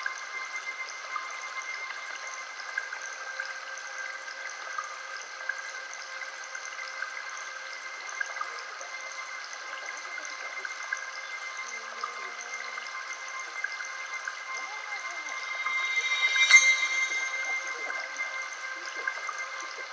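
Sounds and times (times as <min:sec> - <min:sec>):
steady pure tones: 0:13.6 - 0:18.6.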